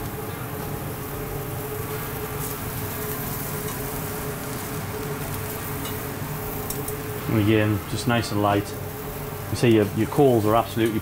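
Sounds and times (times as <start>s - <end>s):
steady mechanical hum: 0.0s - 11.0s
metal tongs clicking on grill: 5.4s - 7.0s.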